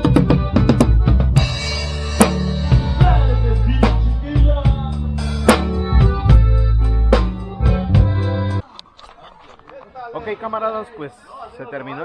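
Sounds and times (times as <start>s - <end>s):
drum kit hits: 0.0s - 6.6s
held bass notes: 0.0s - 8.6s.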